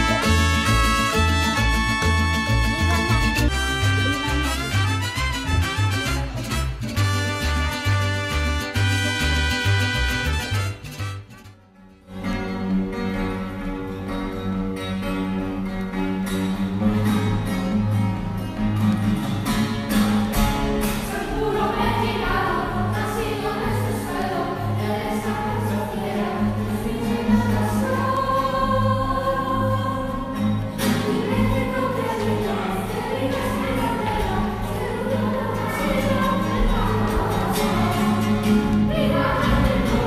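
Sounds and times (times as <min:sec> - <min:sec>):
group of voices singing: 0:20.9 - 0:40.0.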